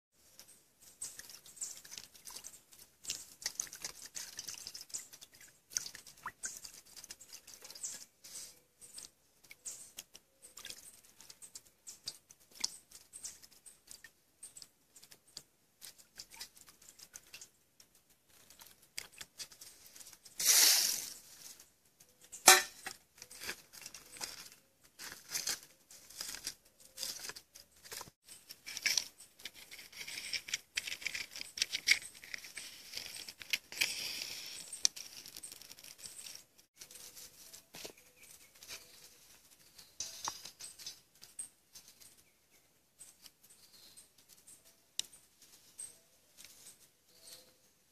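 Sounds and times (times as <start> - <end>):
sticks and leaves rustling: 0.2 - 42.3, 43.1 - 47.7
loud hiss: 20.4 - 21.2.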